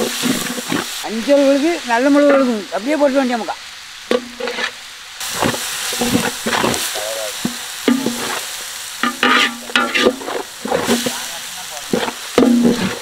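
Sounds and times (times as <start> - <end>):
masala sizzling in a pot: 0.0 - 13.0
metal ladle scraping a pot: 4.1 - 4.8, 9.0 - 11.2, 11.9 - 13.0.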